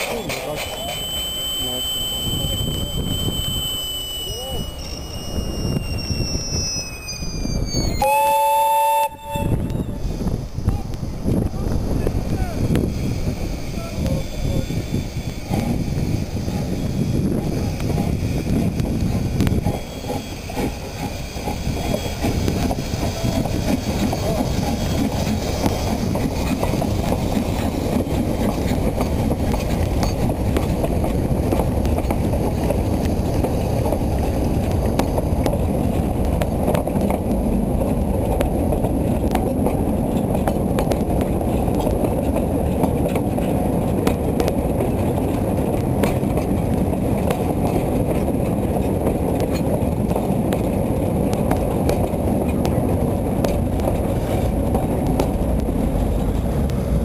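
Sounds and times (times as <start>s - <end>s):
train wheels clattering on rails: 0.0s - 7.6s, 9.2s - 57.0s
steam locomotive hiss: 0.0s - 31.5s.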